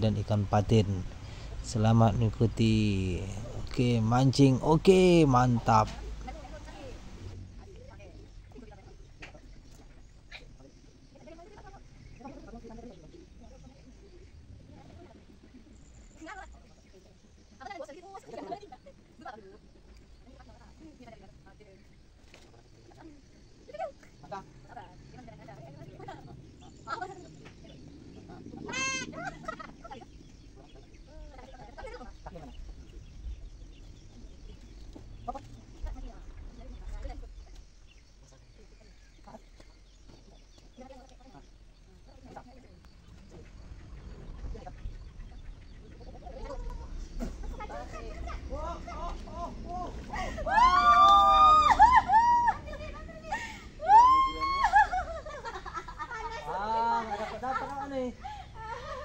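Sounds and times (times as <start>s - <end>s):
low rumble: 0.0s - 10.3s, 24.5s - 40.1s, 42.7s - 56.4s.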